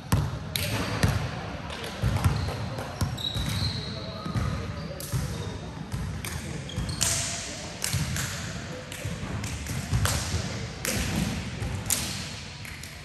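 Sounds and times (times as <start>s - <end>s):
basketball bouncing on gym court: 0.1s - 1.2s.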